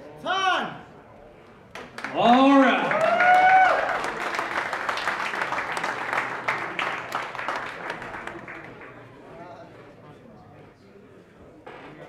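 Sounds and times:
crowd applauding and cheering: 1.8 - 9.3
high whoop: 2.8 - 4.0.

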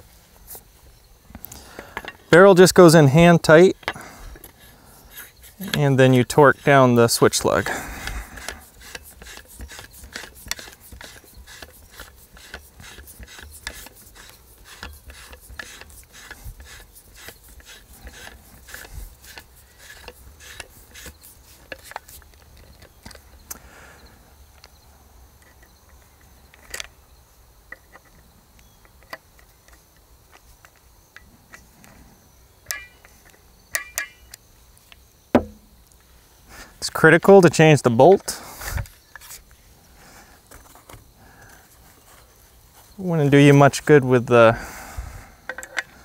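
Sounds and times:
torque wrench clicking: 8.0 - 22.2.

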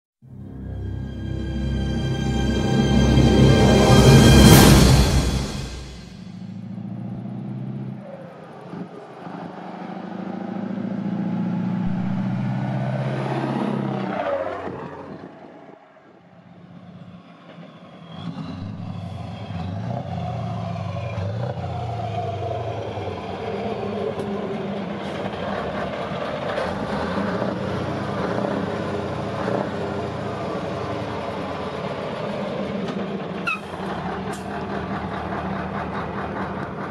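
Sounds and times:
truck engine driving past: 0.2 - 15.3, 16.3 - 36.9.

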